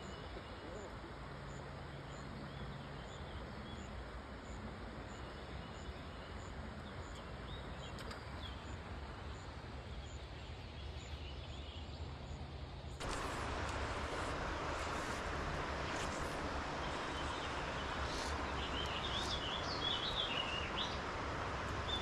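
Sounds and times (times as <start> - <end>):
river background noise: 0.0 - 22.0
faint bird chirps: 13.0 - 22.0.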